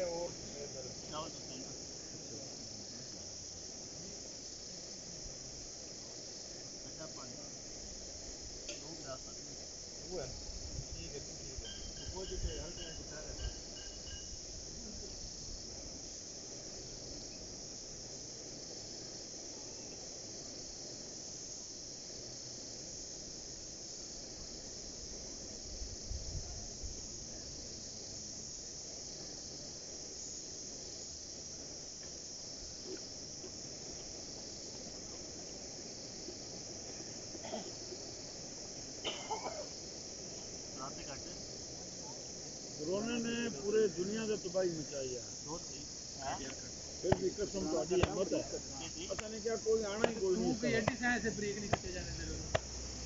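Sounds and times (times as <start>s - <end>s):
crickets chirping: 0.0s - 53.0s.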